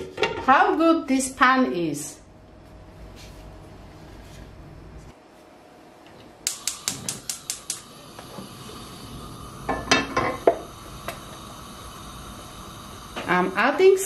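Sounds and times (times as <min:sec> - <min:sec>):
gas igniter clicking: 0:06.4 - 0:11.5
gas flame hissing: 0:06.4 - 0:14.0.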